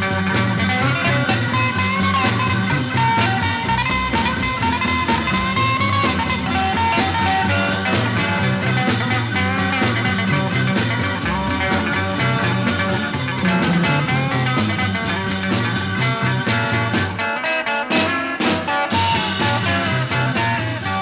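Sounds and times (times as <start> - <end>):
upbeat rock music: 0.0 - 21.0.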